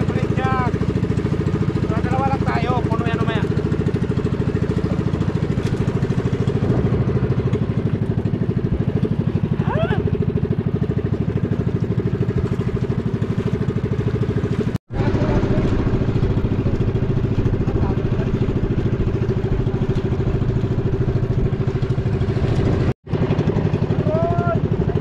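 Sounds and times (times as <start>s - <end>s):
small boat engine puttering: 0.0s - 25.0s.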